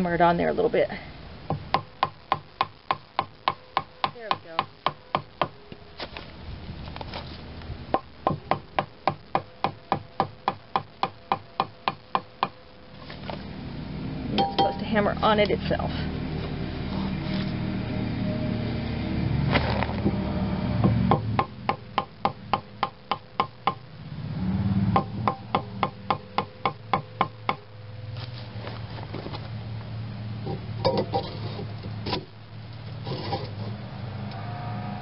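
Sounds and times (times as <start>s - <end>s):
hammer tapping wooden board: 7.9s - 12.6s.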